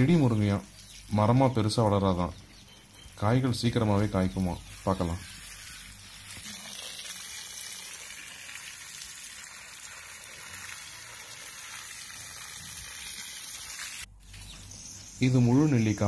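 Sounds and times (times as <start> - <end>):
water spraying onto leaves: 3.1 - 14.5.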